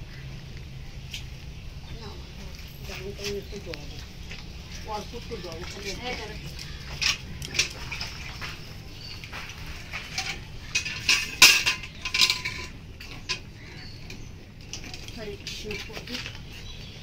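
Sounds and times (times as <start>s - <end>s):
steel pail clinking: 5.0s - 13.6s.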